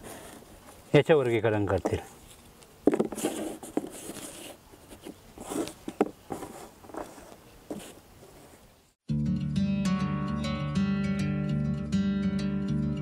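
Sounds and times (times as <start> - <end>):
cardboard scraping on table: 2.9 - 8.5.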